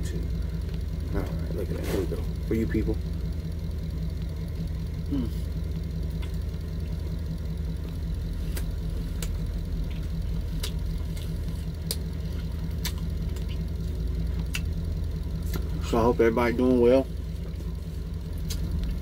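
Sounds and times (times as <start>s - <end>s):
engine idling low hum: 0.0s - 19.0s
close-up chewing: 8.4s - 14.8s, 15.4s - 15.8s, 17.4s - 19.0s.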